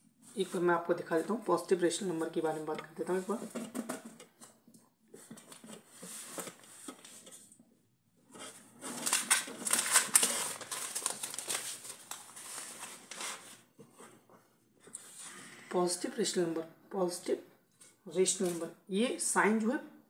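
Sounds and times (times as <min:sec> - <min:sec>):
paper rustling: 0:05.2 - 0:07.6, 0:08.3 - 0:14.2.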